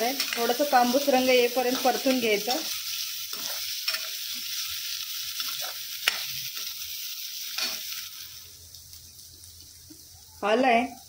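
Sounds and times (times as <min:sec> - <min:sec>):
onions sizzling in oil: 0:00.0 - 0:11.0
spoon scraping pan: 0:01.6 - 0:04.7, 0:05.4 - 0:06.9, 0:07.5 - 0:08.0.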